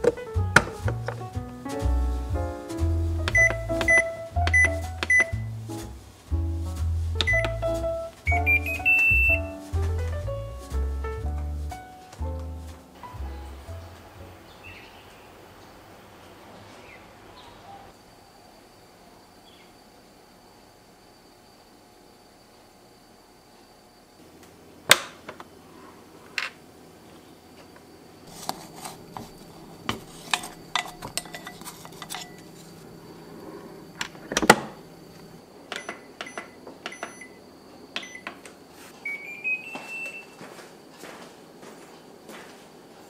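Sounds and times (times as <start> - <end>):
short electronic beeps: 3.4 - 5.5, 8.3 - 9.5, 39.0 - 40.4.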